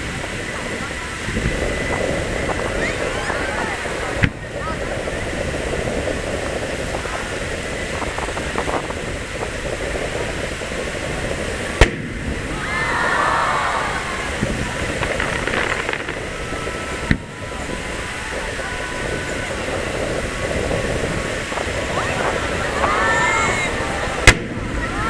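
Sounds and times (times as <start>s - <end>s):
crowd voices: 0.0s - 25.0s
sea waves washing: 0.0s - 25.0s
firework shells bursting: 3.8s - 12.6s, 14.0s - 23.0s, 24.0s - 24.8s.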